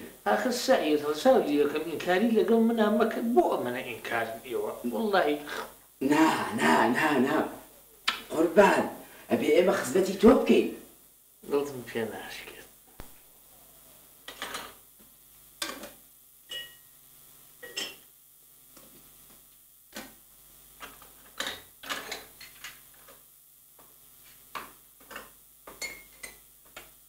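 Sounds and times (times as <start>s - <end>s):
clinking teapots and glasses: 16.5s - 16.8s, 17.6s - 18.0s, 25.7s - 26.4s.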